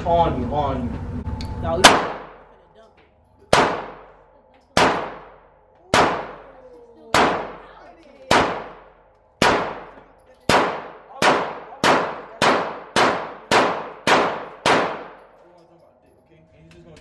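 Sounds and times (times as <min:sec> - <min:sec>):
gunshots ringing indoors: 0:01.8 - 0:02.6, 0:03.5 - 0:15.4.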